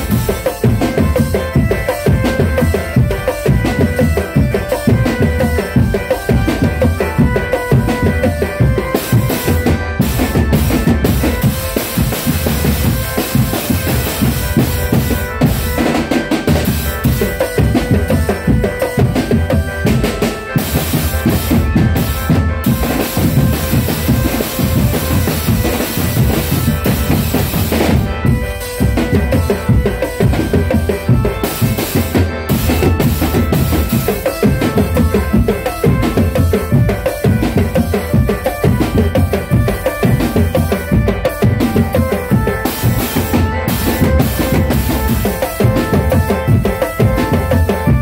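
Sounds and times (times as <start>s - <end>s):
bass drums: 0.0s - 48.0s
snare drums: 0.0s - 48.0s.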